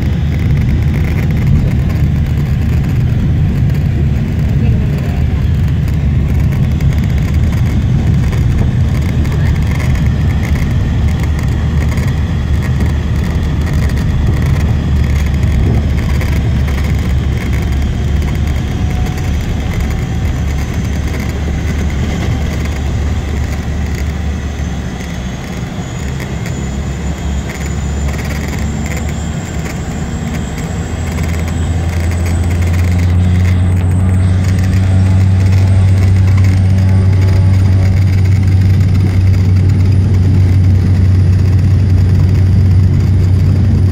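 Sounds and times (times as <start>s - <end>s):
turboprop engine drone and whine: 0.0s - 43.9s.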